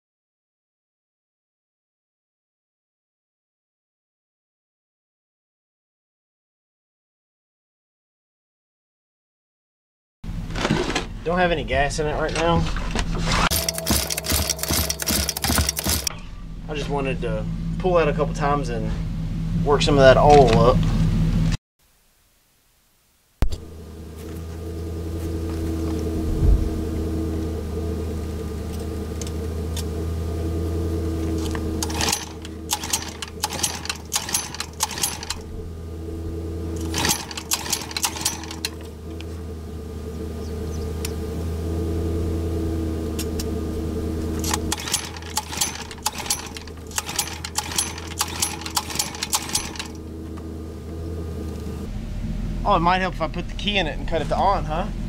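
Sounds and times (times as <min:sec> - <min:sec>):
low mechanical hum: 0:10.2 - 0:22.6, 0:23.4 - 0:55.0
engine recoil rope cranking: 0:13.2 - 0:16.3, 0:31.2 - 0:35.5, 0:36.7 - 0:39.4, 0:44.3 - 0:50.1.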